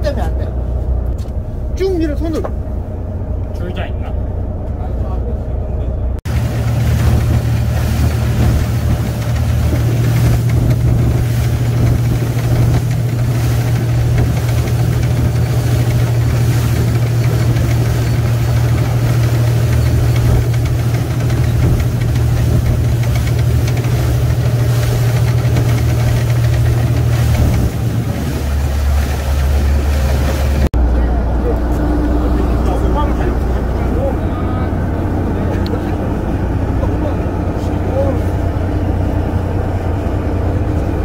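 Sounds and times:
boat engine droning: 0.0s - 41.0s.

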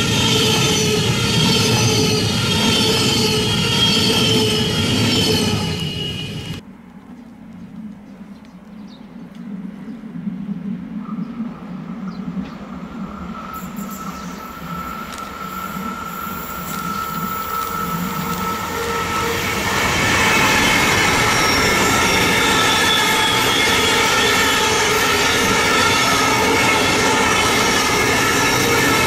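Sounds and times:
high whining tones: 0.0s - 6.6s, 12.6s - 29.0s
train passing: 0.0s - 6.8s, 11.7s - 29.0s.

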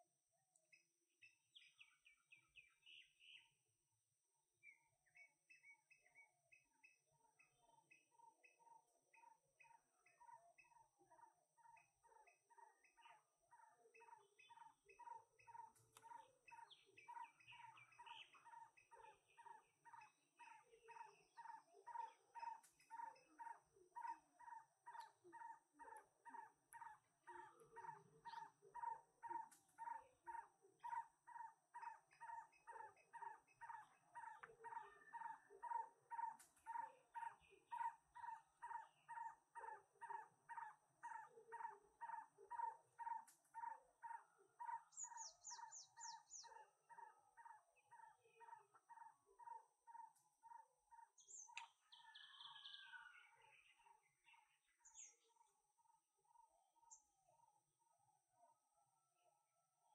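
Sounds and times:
faint repeated animal call: 0.7s - 59.9s
bird twittering: 12.6s - 55.4s.

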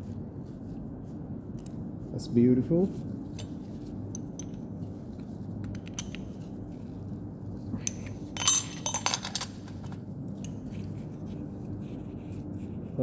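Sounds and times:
low steady hum: 0.0s - 13.0s
metal tools clinking: 7.8s - 10.5s.

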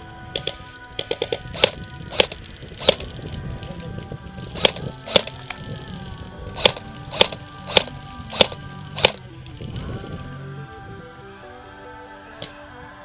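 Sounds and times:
background music: 0.0s - 13.0s
airsoft rifle shots: 0.4s - 3.1s, 6.6s - 9.2s.

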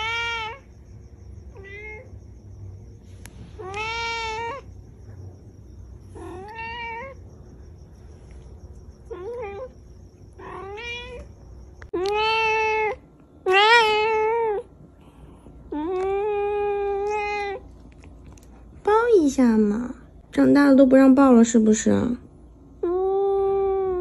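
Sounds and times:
cat meowing: 6.2s - 7.2s, 10.4s - 11.3s, 12.0s - 14.6s.

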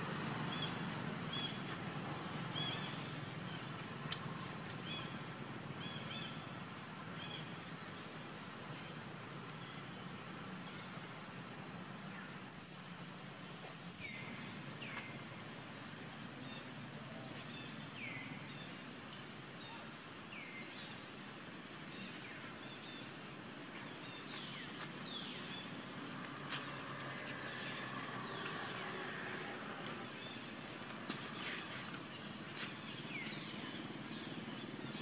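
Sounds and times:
steady background hiss: 0.0s - 35.0s.

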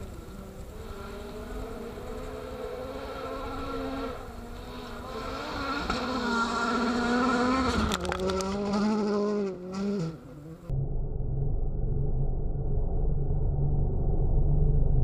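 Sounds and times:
rally car engine revving: 0.0s - 10.7s.

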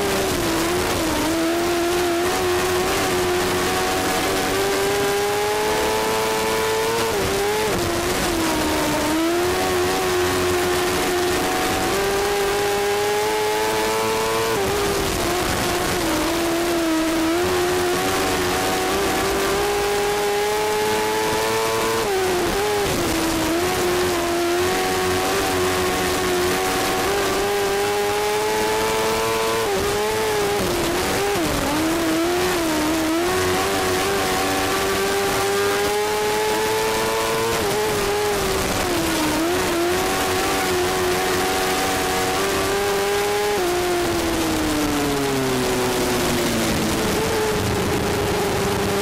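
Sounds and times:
race car engine revving: 0.0s - 49.0s
wind and track noise: 0.0s - 49.0s.

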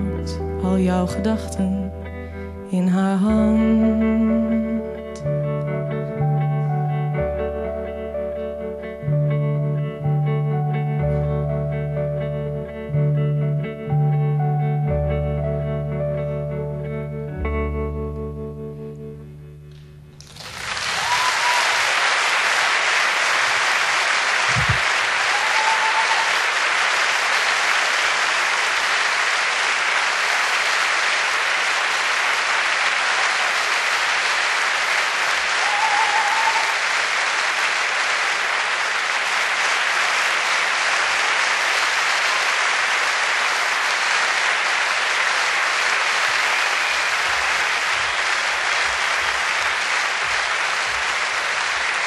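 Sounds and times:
audience applauding: 20.2s - 52.0s
crowd calls: 20.7s - 52.0s.

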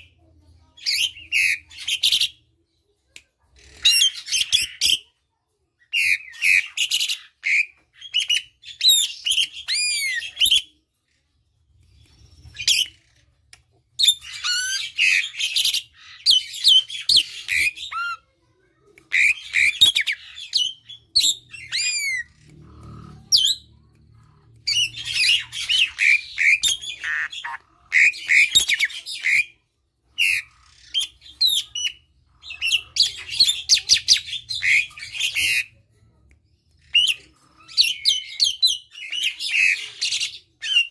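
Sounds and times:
starling singing: 19.1s - 35.8s.

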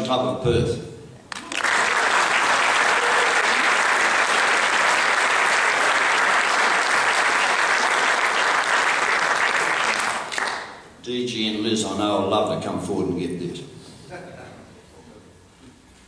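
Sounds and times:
audience applauding: 1.3s - 10.9s.

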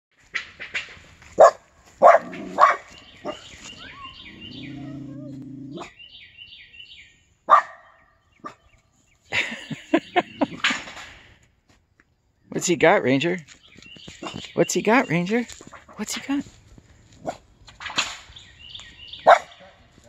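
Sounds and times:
dog barking: 1.4s - 6.0s, 7.5s - 8.6s, 17.2s - 17.4s, 19.2s - 19.8s.

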